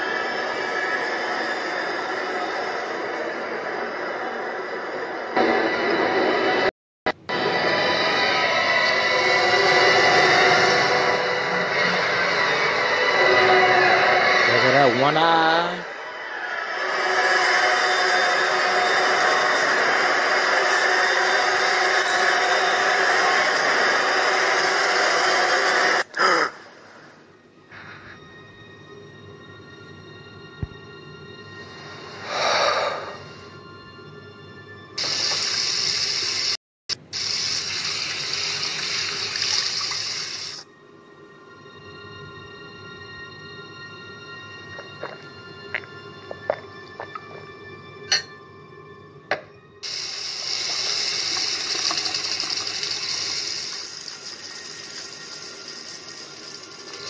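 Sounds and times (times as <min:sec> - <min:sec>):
low music drone: 0:00.0 - 0:36.0, 0:40.6 - 0:57.0
water running: 0:35.0 - 0:40.6, 0:49.8 - 0:57.0.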